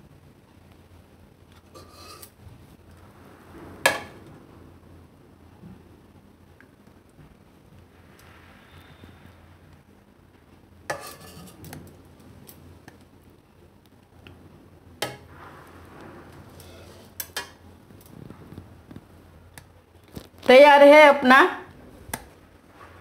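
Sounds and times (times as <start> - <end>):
dishes and utensils clinking: 10.9 - 11.7.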